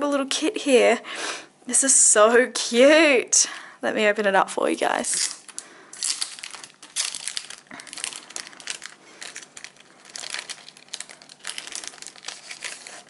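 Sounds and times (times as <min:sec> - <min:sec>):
packaging bag crinkling: 0:05.1 - 0:13.0.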